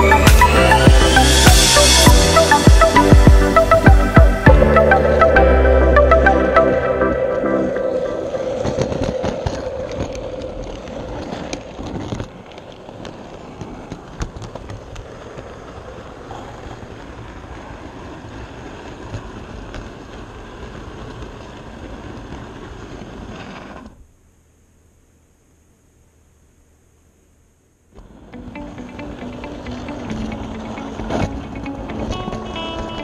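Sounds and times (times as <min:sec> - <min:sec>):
music: 0:00.0 - 0:10.1, 0:28.1 - 0:33.0
model train rolling on track: 0:07.2 - 0:24.0, 0:28.0 - 0:33.0.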